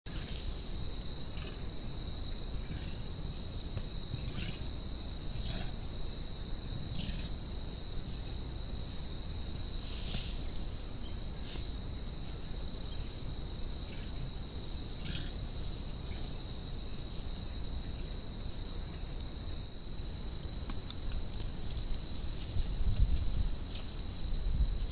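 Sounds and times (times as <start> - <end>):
insect chirps: 0.1 - 24.9
insects trilling: 0.1 - 24.9.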